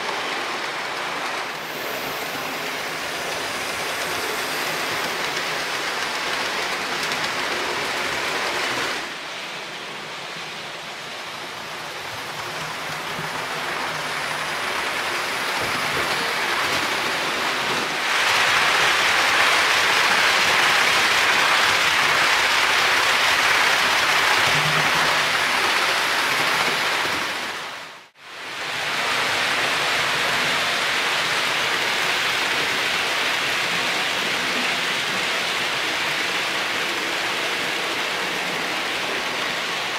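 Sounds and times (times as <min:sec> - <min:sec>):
model train wheels clattering on rails: 0:00.0 - 0:09.1, 0:12.1 - 0:27.6.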